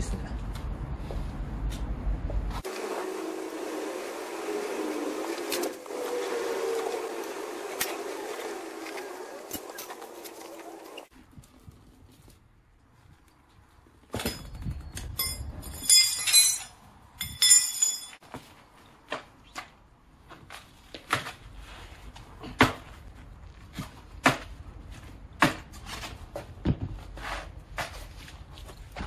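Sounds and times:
tyre levers clinking on rim: 0:14.1 - 0:18.2.

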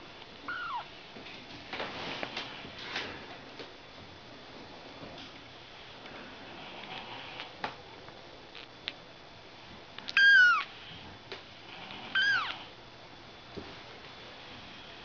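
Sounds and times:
kitten mewing: 0:00.5 - 0:00.9, 0:10.1 - 0:10.7, 0:12.1 - 0:12.7.

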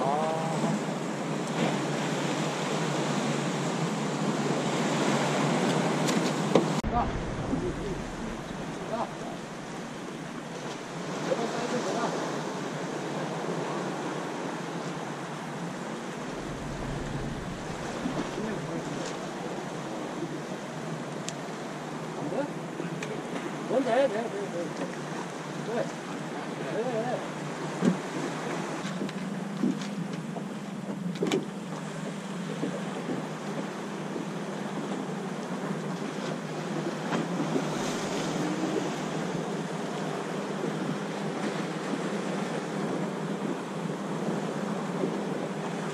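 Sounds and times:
low wind rumble: 0:00.0 - 0:12.4, 0:15.3 - 0:22.2, 0:31.8 - 0:45.9
waves breaking on rocks: 0:00.0 - 0:22.2, 0:31.4 - 0:45.9
water lapping against boat: 0:00.0 - 0:45.9
wind noise on microphone: 0:06.7 - 0:10.6, 0:16.2 - 0:20.2
wind on microphone: 0:06.7 - 0:11.1, 0:16.1 - 0:20.5, 0:36.4 - 0:43.6
low hum: 0:06.8 - 0:10.9, 0:16.1 - 0:20.3.

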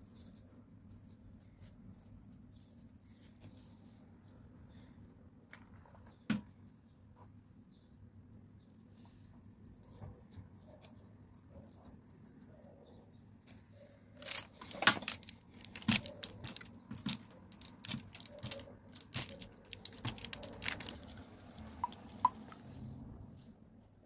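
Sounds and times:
fork clicking and tapping: 0:21.8 - 0:22.5.

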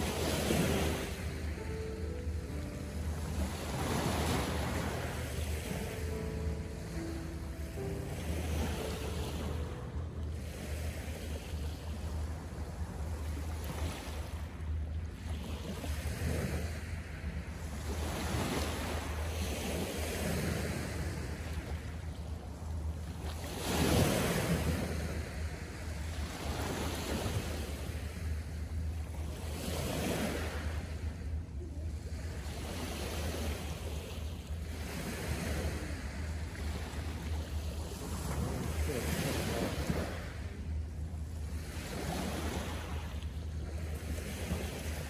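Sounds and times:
steady low rumble: 0:00.0 - 0:19.2, 0:39.8 - 0:45.0
waves washing onto shore: 0:00.0 - 0:45.0.

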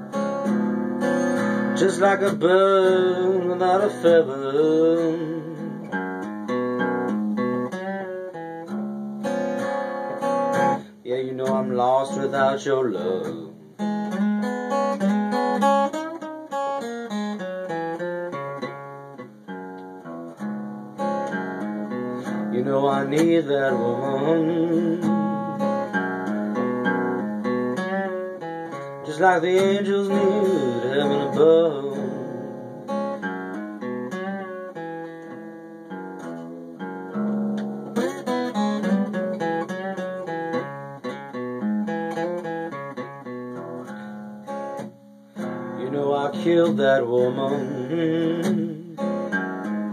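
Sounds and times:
acoustic guitar picking: 0:00.0 - 0:49.9.

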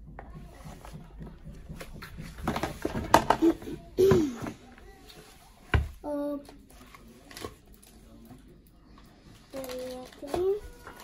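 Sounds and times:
knocks and rustling: 0:00.0 - 0:04.7.

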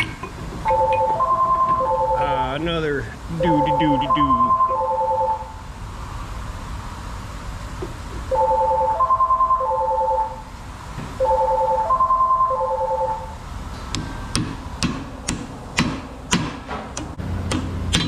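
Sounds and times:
electronic phone ringtone: 0:00.6 - 0:02.6, 0:03.4 - 0:05.6, 0:08.3 - 0:10.5, 0:11.2 - 0:13.4
sharp metal taps: 0:13.9 - 0:18.0.

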